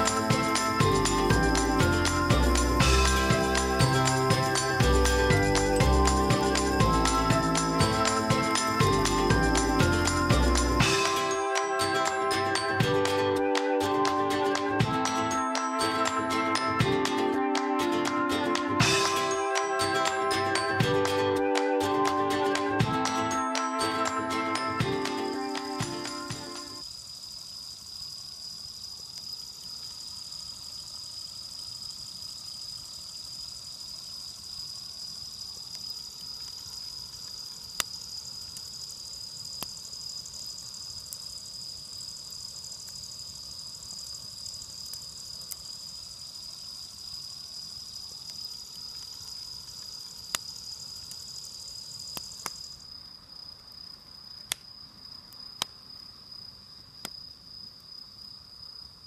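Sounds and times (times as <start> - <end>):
campfire crackling and popping: 0.0 - 13.2, 24.8 - 26.8, 35.3 - 52.8
crickets chirring: 0.0 - 13.4, 18.6 - 59.0
high insect trill: 0.0 - 17.2, 18.3 - 59.0.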